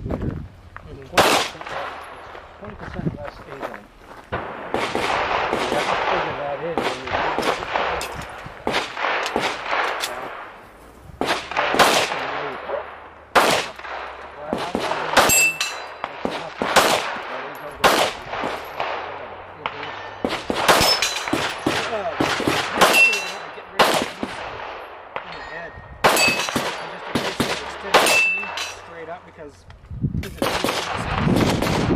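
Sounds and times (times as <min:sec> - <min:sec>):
pistol shots: 0:01.1 - 0:02.5, 0:04.3 - 0:10.6, 0:11.2 - 0:25.4, 0:26.0 - 0:28.9, 0:30.4 - 0:31.9
steel targets ringing: 0:15.2 - 0:16.1, 0:19.7 - 0:21.8, 0:22.8 - 0:23.7, 0:25.3 - 0:27.0, 0:27.7 - 0:28.9.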